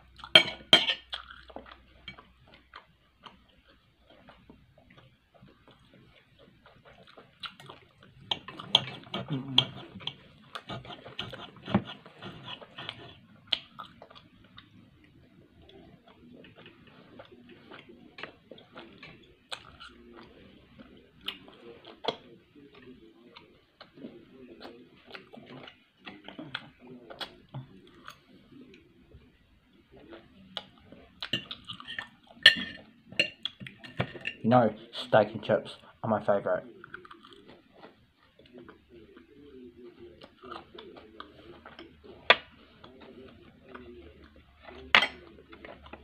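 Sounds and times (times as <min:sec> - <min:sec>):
chewing and mouth sounds: 0:00.0 - 0:28.9, 0:29.8 - 0:33.8, 0:36.6 - 0:46.0
cutlery scraping a plate: 0:00.3 - 0:01.1, 0:08.3 - 0:13.2, 0:31.3 - 0:34.4.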